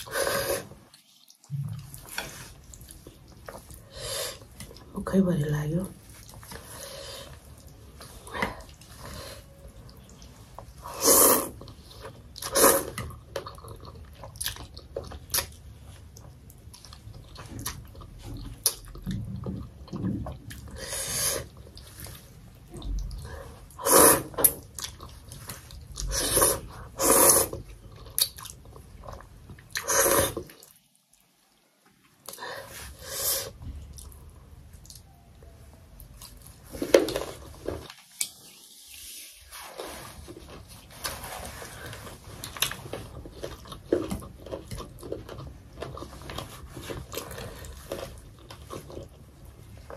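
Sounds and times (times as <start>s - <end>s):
loud slurps of noodles: 10.8s - 11.6s, 12.4s - 13.0s, 23.8s - 24.5s, 26.1s - 27.6s, 29.8s - 30.4s
chewing: 11.4s - 23.5s, 24.3s - 31.6s, 39.8s - 49.9s.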